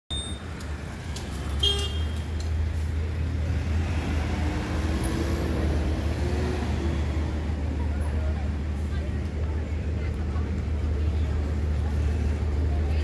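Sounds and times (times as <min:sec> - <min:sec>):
short high beep: 0:00.1 - 0:00.4
traffic rumble: 0:00.1 - 0:13.0.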